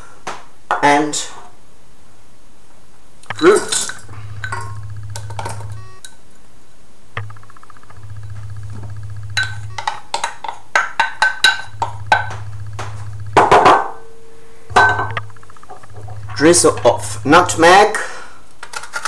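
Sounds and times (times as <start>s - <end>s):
low hum: 3.2s - 6.3s, 7.1s - 10.4s, 11.0s - 18.0s
wooden spoon knocking on pan: 8.7s - 13.9s.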